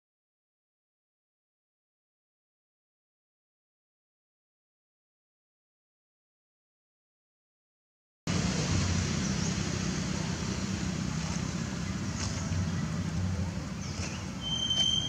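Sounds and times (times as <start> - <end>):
low rumble: 8.3 - 15.0
faint short chirps: 14.1 - 15.0.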